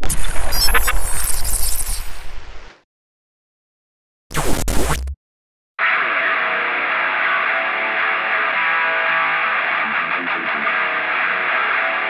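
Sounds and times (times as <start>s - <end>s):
rock music with electric guitar: 5.8s - 12.0s.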